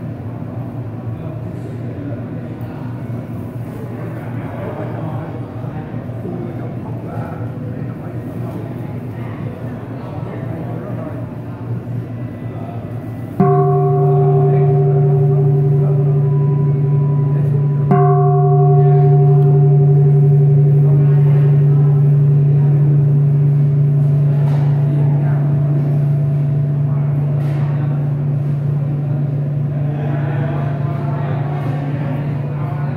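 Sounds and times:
metal bowl bell ringing: 0:13.0 - 0:29.8.

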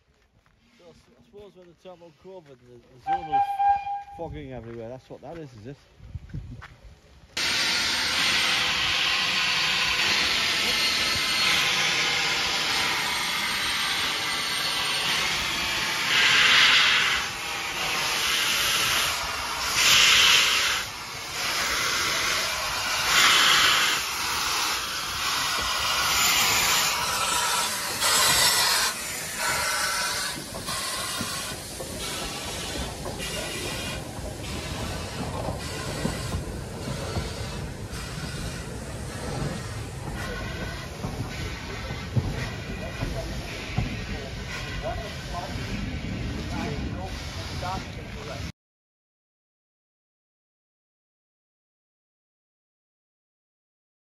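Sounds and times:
steam locomotive hissing: 0:03.0 - 0:04.4, 0:07.3 - 0:48.5
blasts of steam: 0:07.4 - 0:48.5.

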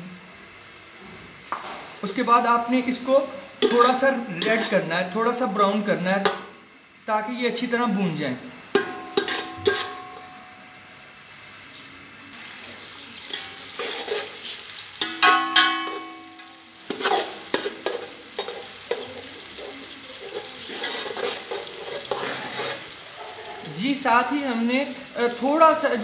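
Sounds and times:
onions sizzling in oil: 0:00.0 - 0:26.0
metal spoon clinking on pot: 0:03.6 - 0:04.7, 0:08.7 - 0:10.5, 0:15.0 - 0:22.4
spoon scraping pot: 0:03.6 - 0:04.8, 0:08.8 - 0:10.3, 0:13.3 - 0:16.1, 0:16.9 - 0:23.7.

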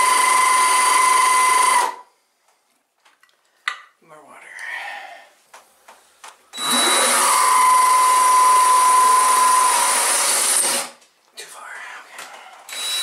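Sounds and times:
drill whining into tile: 0:00.0 - 0:02.0, 0:06.5 - 0:11.0, 0:12.7 - 0:13.0.

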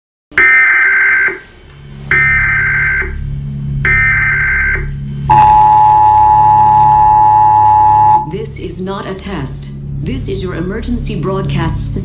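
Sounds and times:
low drone hum: 0:01.2 - 0:12.0
buzzing digital data tone bursts: 0:02.1 - 0:08.3
two-tone attention signal: 0:03.9 - 0:08.3.

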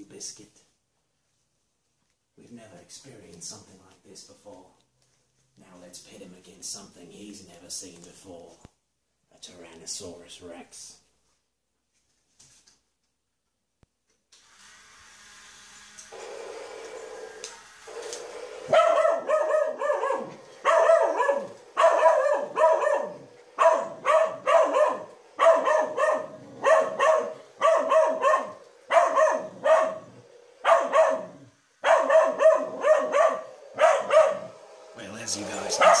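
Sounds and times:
toy motor whirring: 0:14.4 - 0:18.8, 0:22.4 - 0:32.4, 0:33.4 - 0:36.0
dog barking sharply: 0:18.7 - 0:34.6, 0:35.7 - 0:36.0.

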